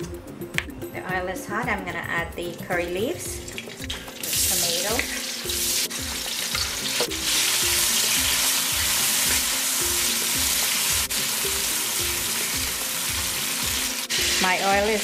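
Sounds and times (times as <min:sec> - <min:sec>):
food sizzling in hot oil: 0:03.4 - 0:15.0.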